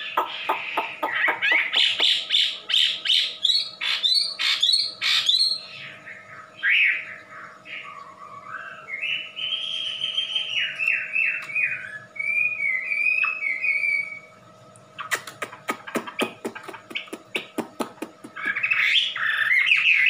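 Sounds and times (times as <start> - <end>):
songbird whistling song: 0.0 - 14.4, 18.3 - 20.0
bird sharp clicking notes: 0.1 - 2.3, 15.0 - 18.8.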